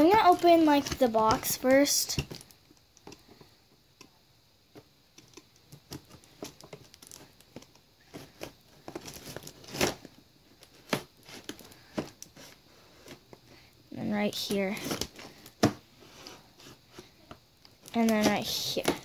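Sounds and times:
packaging crinkling and tearing: 0:08.4 - 0:12.2.

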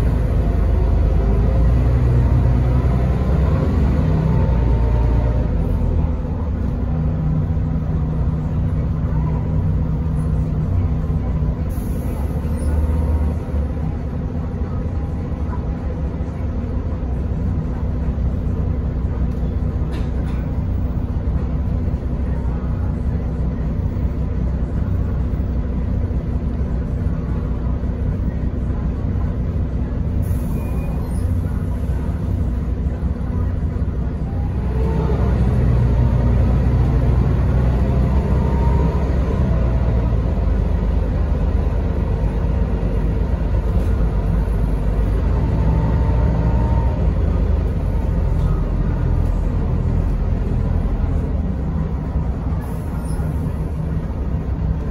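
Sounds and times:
bus engine and road rumble: 0:00.0 - 0:54.9.

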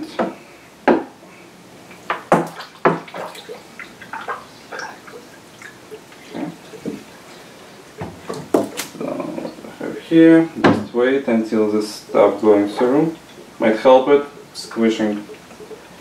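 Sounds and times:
water splashing into funnel: 0:02.1 - 0:09.0.

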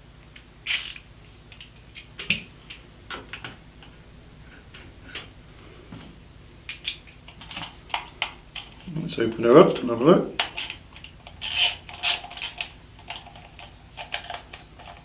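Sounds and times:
ratchet screwdriver clicks: 0:00.7 - 0:01.0, 0:10.5 - 0:10.8, 0:11.4 - 0:12.6.

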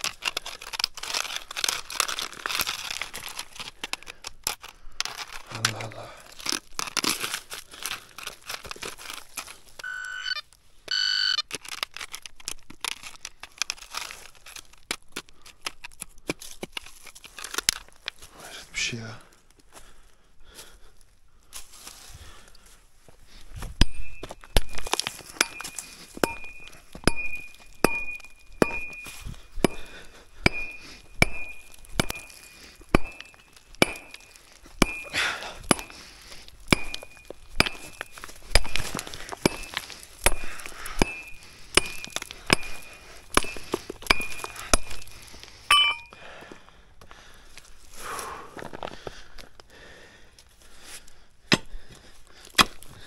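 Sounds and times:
metal tool striking stone: 0:23.8 - 0:36.0, 0:36.7 - 0:45.1, 0:45.7 - 0:46.2.

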